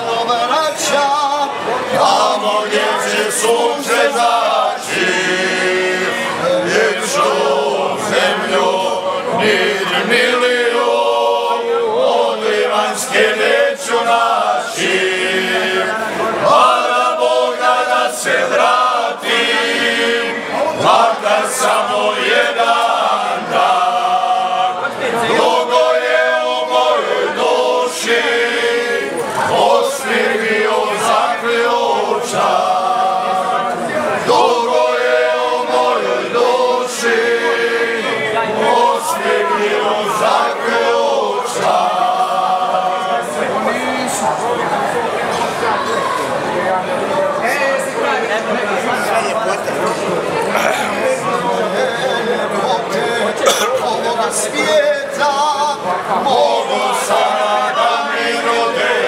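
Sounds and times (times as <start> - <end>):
men singing in harmony: 0.0 - 44.1.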